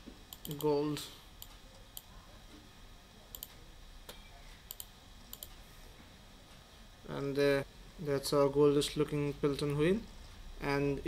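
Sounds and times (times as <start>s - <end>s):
faint computer mouse clicks: 3.3s - 5.6s.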